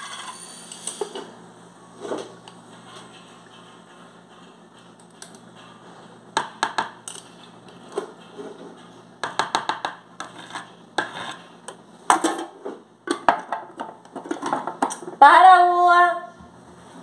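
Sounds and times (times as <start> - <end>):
spoon scraping glass jar: 0.0 - 1.2, 10.2 - 11.6.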